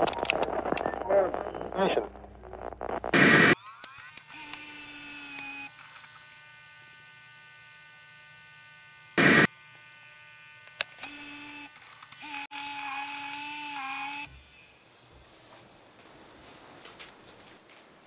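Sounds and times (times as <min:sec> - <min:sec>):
burst of static: 0:00.0 - 0:03.6, 0:09.2 - 0:09.5
electronic buzzing hum: 0:00.0 - 0:16.6.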